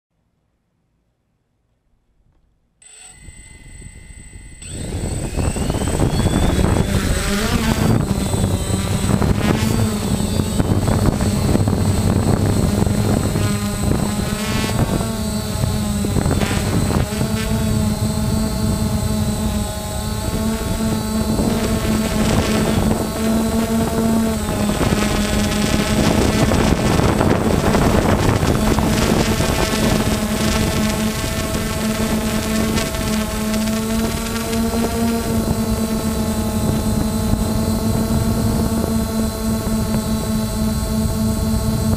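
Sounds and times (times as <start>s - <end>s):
drone motors buzzing: 2.8s - 41.9s.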